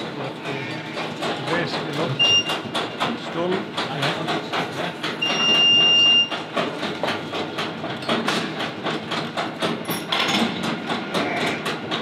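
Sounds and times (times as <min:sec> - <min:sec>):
metal conveyor clanking: 0:00.0 - 0:12.0
high beep: 0:02.2 - 0:02.5, 0:05.2 - 0:06.3.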